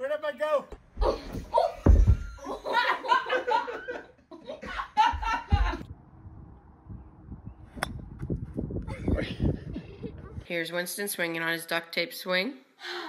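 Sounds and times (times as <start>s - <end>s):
dull thumps: 0.7s - 2.4s, 5.0s - 5.8s
loud laughter: 1.6s - 5.8s.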